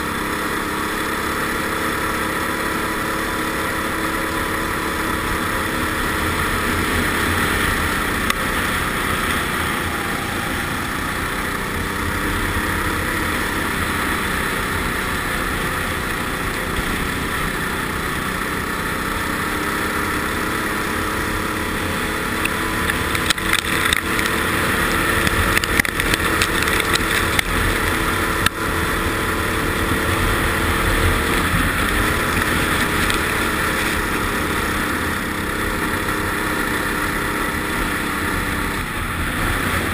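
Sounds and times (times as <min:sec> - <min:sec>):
kart engine running: 0:00.0 - 0:39.9
sharp clicks and knocks: 0:22.4 - 0:24.4, 0:25.2 - 0:28.6.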